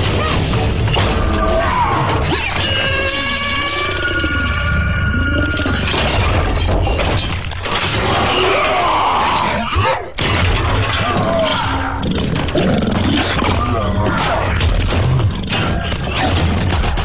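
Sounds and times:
growling vocal sounds: 11.0 - 14.6.

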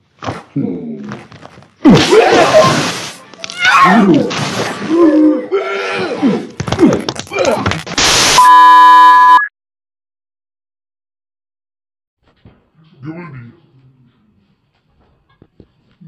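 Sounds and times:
burst of noise: 7.9 - 8.6
electronic beep tone: 8.4 - 9.5.

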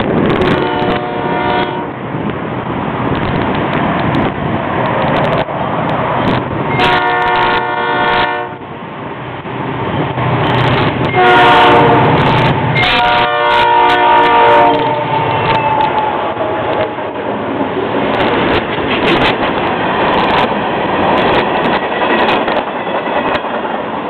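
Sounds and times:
locomotive engines rumbling: 0.0 - 24.0
locomotive air horn blasts: 0.4 - 2.0, 6.7 - 8.6, 11.1 - 12.2, 12.8 - 16.0.

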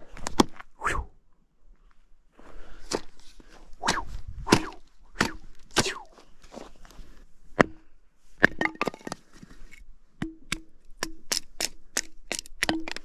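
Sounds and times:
hatchet chopping firewood: 3.8 - 6.1, 7.6 - 9.2, 10.2 - 13.0.

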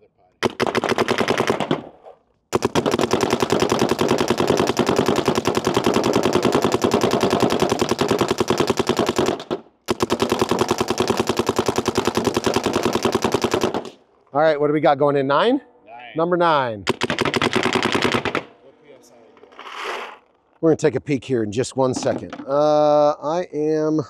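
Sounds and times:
paintball marker rapid firing: 0.4 - 14.0, 16.9 - 18.6.

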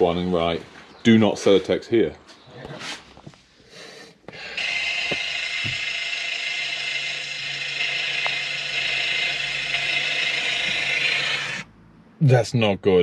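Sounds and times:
van mechanical racket: 4.2 - 11.7.

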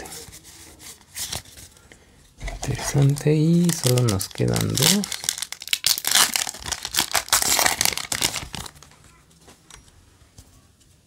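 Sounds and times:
foil wrapper tearing and crinkling: 2.4 - 8.9.

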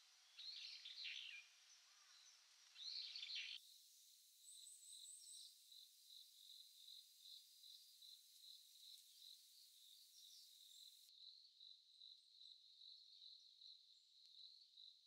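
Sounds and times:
songbird chirps: 0.0 - 3.6, 4.3 - 11.1.

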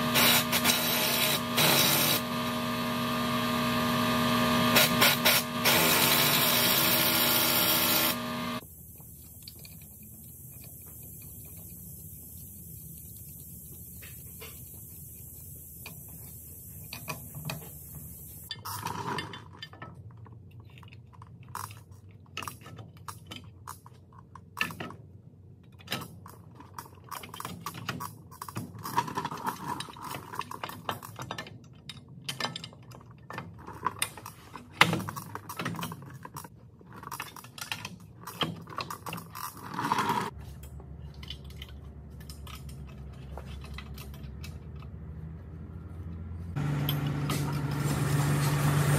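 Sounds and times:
metal tools clinking and knocking: 25.8 - 45.0.

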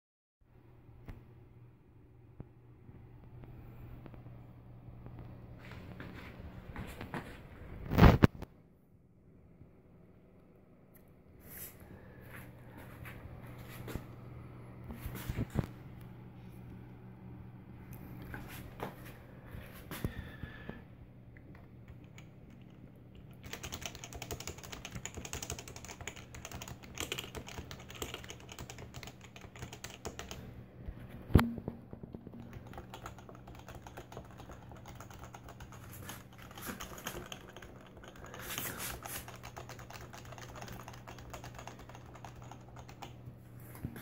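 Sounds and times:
faint low hum: 0.5 - 44.0.

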